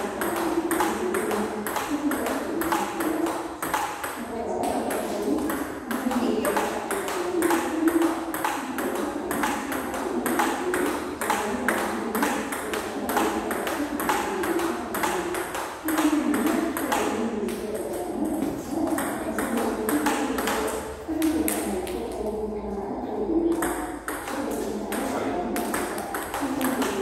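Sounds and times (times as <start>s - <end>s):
table tennis ball clicking: 0.0s - 22.1s.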